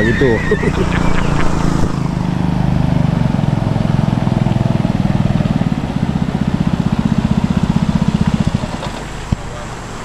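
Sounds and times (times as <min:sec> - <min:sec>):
outboard motor droning: 0:00.0 - 0:10.0.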